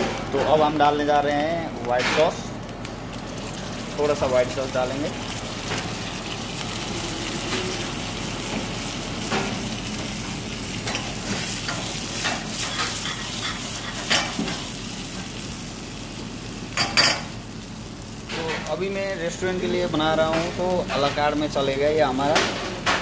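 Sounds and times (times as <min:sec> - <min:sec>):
sauce sizzling in a frying pan: 0:00.0 - 0:22.4.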